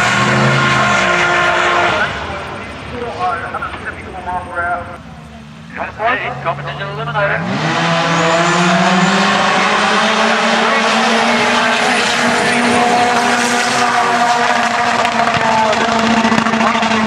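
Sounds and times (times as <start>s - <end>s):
dragster engines at full throttle: 0.0s - 17.0s.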